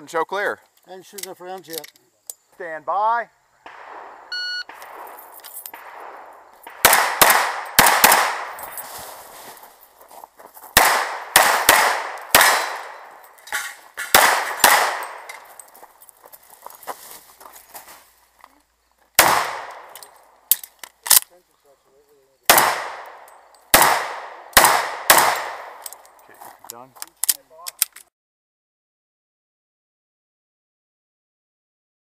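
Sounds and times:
pistol shots with echo: 3.6s - 8.7s, 10.8s - 13.2s, 14.0s - 15.4s, 19.2s - 20.0s, 22.5s - 25.8s.

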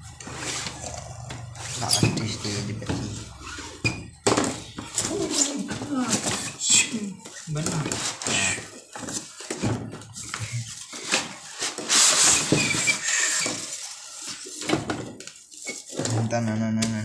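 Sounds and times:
cardboard box scraping: 0.1s - 3.8s, 4.8s - 16.2s
foam and plastic wrap rustling: 4.4s - 17.0s.

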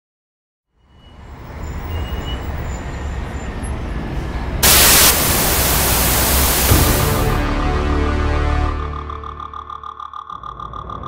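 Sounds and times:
burst of static hiss: 4.6s - 7.5s.

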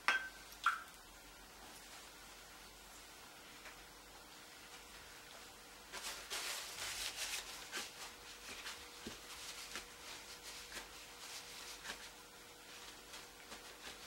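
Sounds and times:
paper tissue rustling and dabbing: 1.6s - 3.0s, 4.6s - 14.0s.

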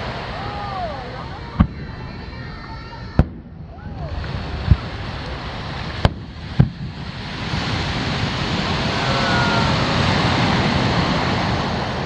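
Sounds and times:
rushing noise: 0.0s - 12.0s
firework boom: 1.4s - 9.9s.

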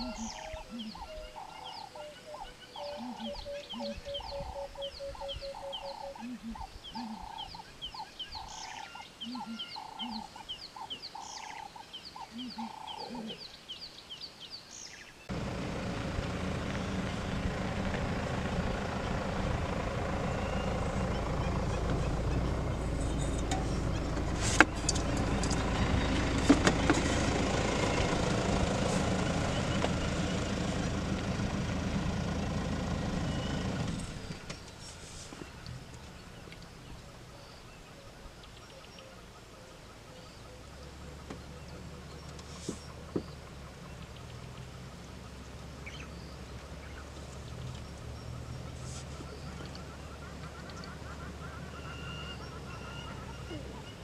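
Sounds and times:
birds calling: 0.0s - 54.0s
loud steady rumbling: 15.3s - 34.4s.

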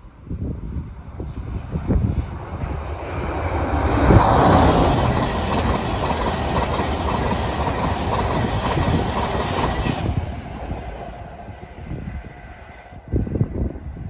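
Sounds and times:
train passing at speed: 0.1s - 14.0s.

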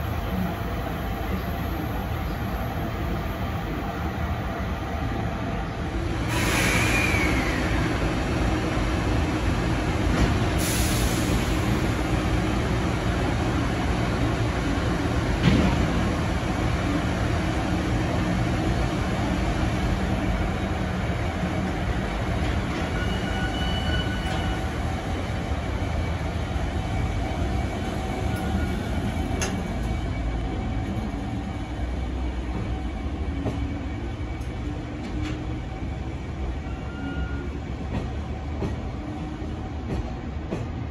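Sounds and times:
brief high hiss: 6.3s - 7.7s
short high squeal: 6.3s - 7.9s.

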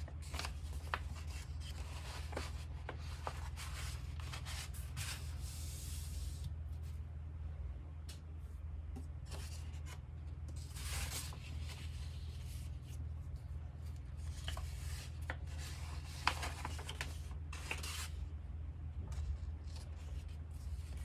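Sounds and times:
paper pages rustling: 0.0s - 6.9s, 9.2s - 18.2s.

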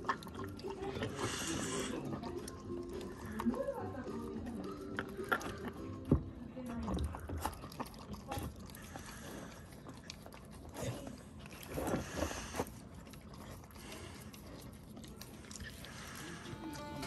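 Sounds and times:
dog crunching and chewing food: 0.0s - 17.0s.

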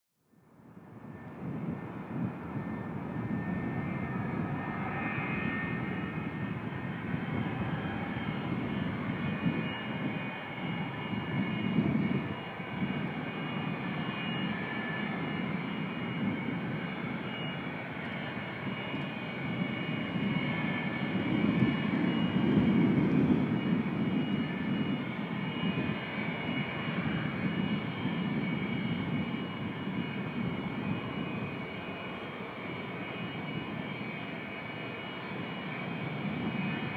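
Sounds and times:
jet engines rumbling: 0.8s - 36.9s
high-pitched jet whine: 0.9s - 36.9s.

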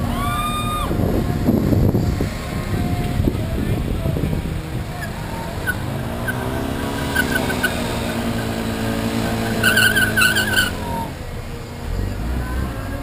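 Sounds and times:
rushing rumble: 0.0s - 13.0s
scooter engine running: 1.0s - 11.9s
wavering high squeal: 4.9s - 11.4s.

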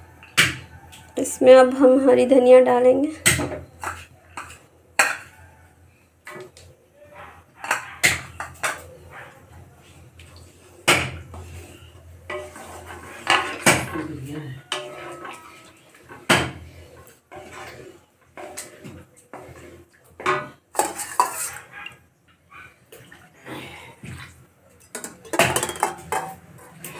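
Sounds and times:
spatula scraping metal pan: 11.2s - 21.8s.

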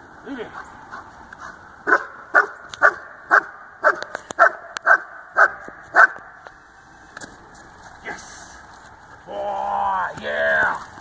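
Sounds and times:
dog barking: 1.9s - 6.3s.

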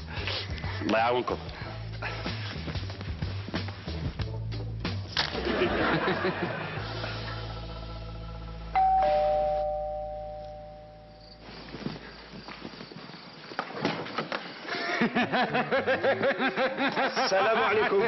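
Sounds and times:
doorbell ding-dong chime: 8.8s - 11.1s.

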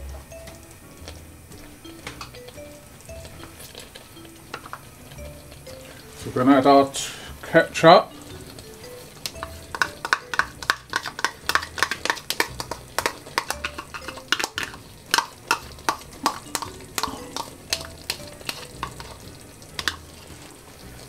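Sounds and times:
spoon scraping and tapping a bowl: 8.3s - 20.5s.

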